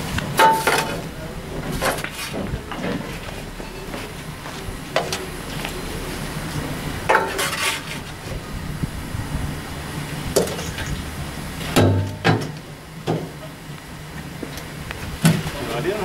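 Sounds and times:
shovel scraping against steel: 0:07.1 - 0:08.2.

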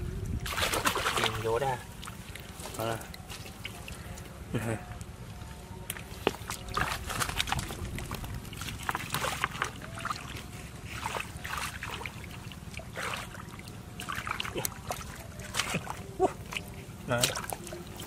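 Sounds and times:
hand splashing in muddy water: 0:00.4 - 0:01.4, 0:05.9 - 0:18.0.

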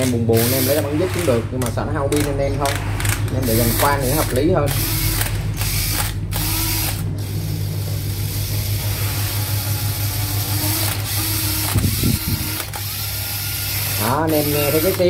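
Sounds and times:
drill clicks: 0:00.0 - 0:08.5, 0:09.6 - 0:15.0
cordless drill whirring: 0:00.1 - 0:01.4, 0:02.2 - 0:15.0
low hum: 0:02.4 - 0:13.8.

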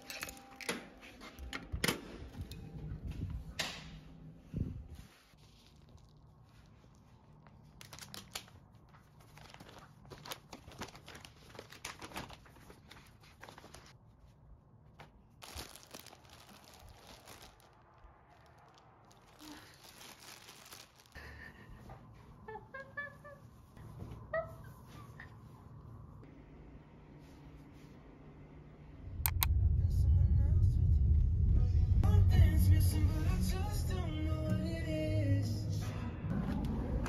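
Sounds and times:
crinkling and rustling: 0:04.9 - 0:21.6.

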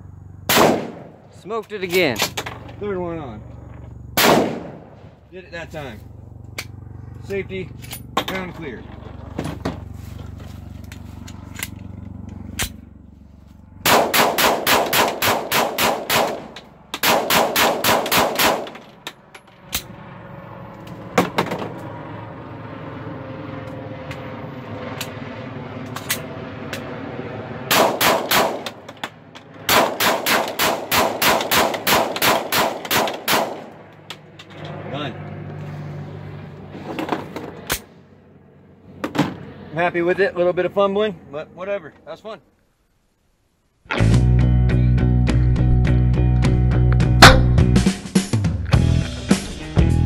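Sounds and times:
pistol shots: 0:00.5 - 0:01.3, 0:04.2 - 0:05.1, 0:13.8 - 0:18.8, 0:27.7 - 0:28.9, 0:29.7 - 0:33.8, 0:47.2 - 0:47.6.

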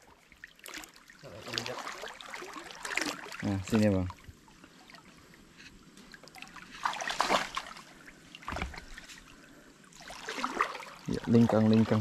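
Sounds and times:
stream trickling: 0:00.0 - 0:12.0
water splashing around legs: 0:00.5 - 0:04.2, 0:06.2 - 0:09.2, 0:10.0 - 0:12.0.

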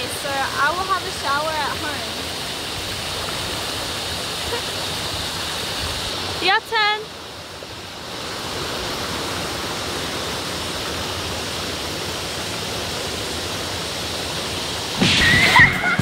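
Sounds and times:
creek water rushing over rocks: 0:00.0 - 0:16.0.

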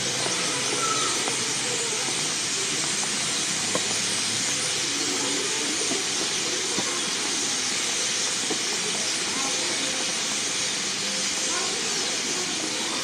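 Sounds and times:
faint distant voices: 0:00.0 - 0:13.0
outdoor ambience hiss: 0:00.0 - 0:13.0.

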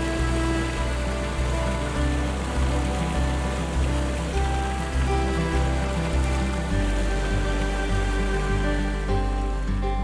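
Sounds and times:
acoustic music: 0:00.0 - 0:10.0.

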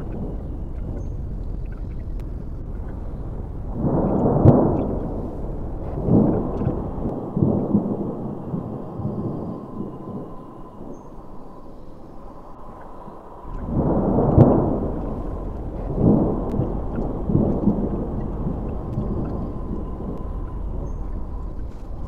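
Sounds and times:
steady low background noise: 0:00.0 - 0:22.0
thunder rumbling: 0:00.0 - 0:22.0.

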